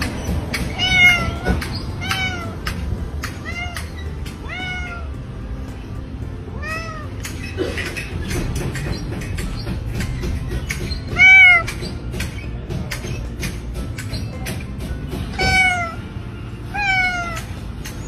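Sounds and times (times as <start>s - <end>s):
cat meowing: 0.7s - 2.7s, 3.4s - 5.2s, 6.5s - 7.2s, 11.1s - 11.8s, 15.4s - 16.0s, 16.7s - 17.5s.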